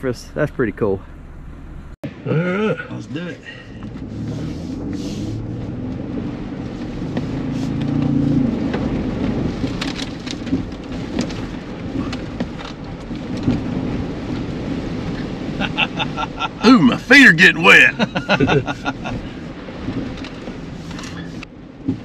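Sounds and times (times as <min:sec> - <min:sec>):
engine revving: 0:01.2 - 0:09.7
mud and water splashing on car body: 0:02.8 - 0:22.0.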